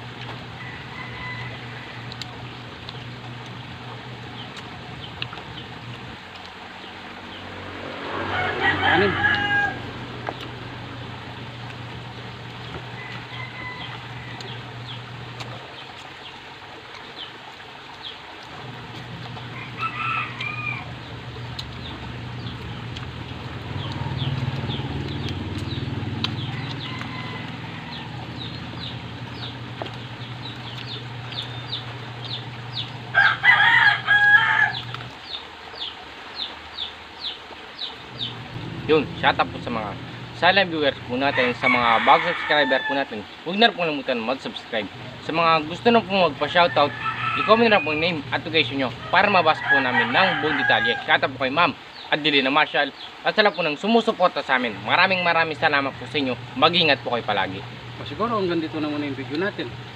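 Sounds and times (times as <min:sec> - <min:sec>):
roosters crowing: 0:00.0 - 0:06.2, 0:06.8 - 0:15.8, 0:18.5 - 0:35.4, 0:38.0 - 0:52.5, 0:54.3 - 0:59.9
low steady hum: 0:00.0 - 0:36.2, 0:37.9 - 0:52.0, 0:54.5 - 0:59.9.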